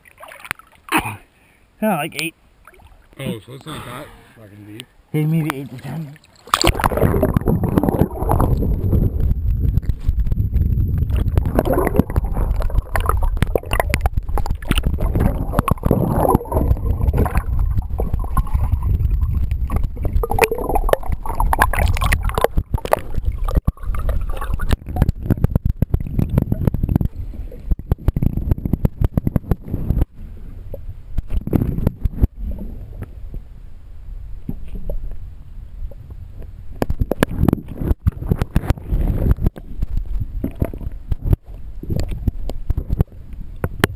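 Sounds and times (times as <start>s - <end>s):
crackling clicks in water: 0.4s - 1.0s, 6.4s - 30.1s, 36.8s - 43.9s
underwater gurgling rumble: 6.2s - 43.9s.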